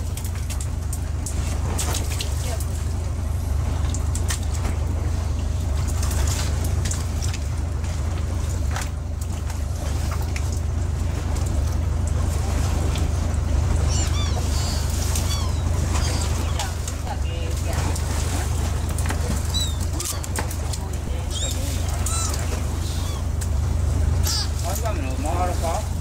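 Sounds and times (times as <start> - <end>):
clicks and rustling of sorting fish: 0.0 - 2.8, 5.8 - 10.7, 14.4 - 22.6
boat engine running: 0.0 - 26.0
gull calls: 13.6 - 17.0, 19.3 - 23.6, 24.2 - 25.1.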